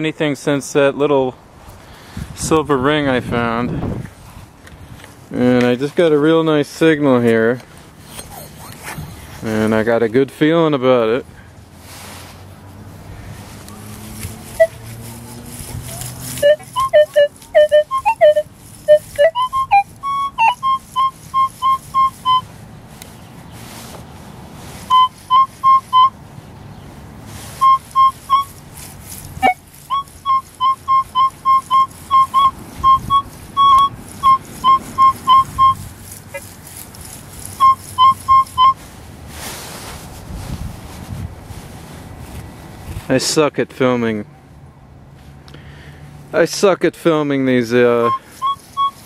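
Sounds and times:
metal detector beeping: 8.0 - 9.3, 14.6 - 14.8, 16.3 - 22.5, 24.9 - 26.2, 27.6 - 28.6, 29.4 - 36.4, 37.5 - 38.8, 48.0 - 49.0
person talking: 8.3 - 11.3, 46.3 - 48.2.

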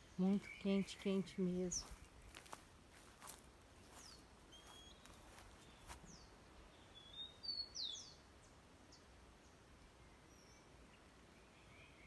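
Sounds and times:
high bird chirps: 3.9 - 6.2.

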